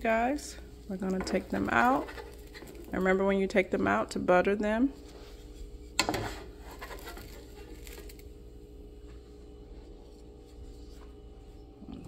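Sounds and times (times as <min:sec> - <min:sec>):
low steady hum: 0:00.0 - 0:12.0
faint scrapes: 0:05.0 - 0:08.2.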